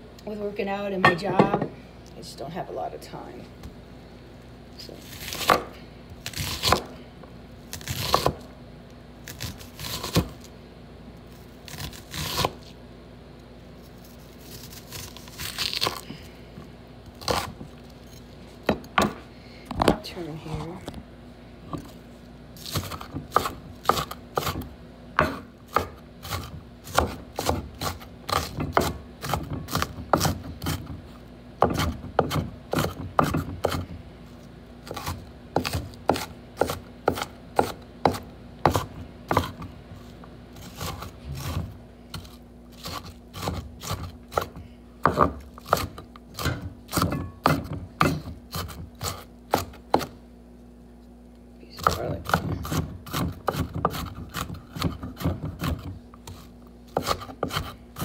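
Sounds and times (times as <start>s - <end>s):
knife chopping on wooden board: 5.2s - 7.0s, 7.7s - 8.5s, 9.3s - 10.4s, 18.6s - 19.2s, 22.6s - 31.0s, 31.6s - 34.0s, 34.8s - 39.7s, 40.6s - 50.2s, 51.8s - 58.0s.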